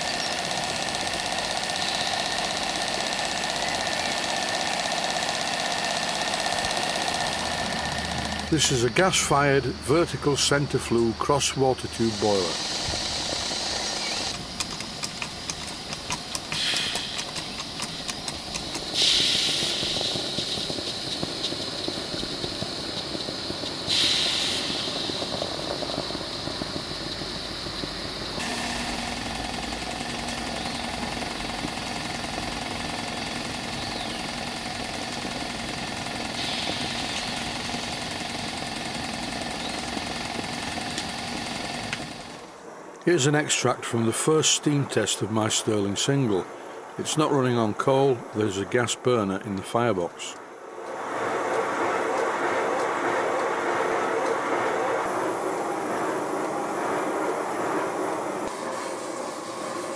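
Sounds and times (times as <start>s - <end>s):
steam engine exhaust beats: 0.0s - 42.6s, 50.8s - 59.9s
steam hiss bursts: 10.4s - 42.5s, 58.4s - 59.9s.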